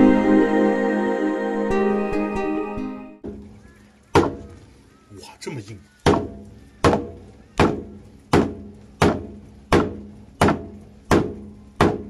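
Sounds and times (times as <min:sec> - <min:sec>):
hammering knocks: 0:06.0 - 0:12.0.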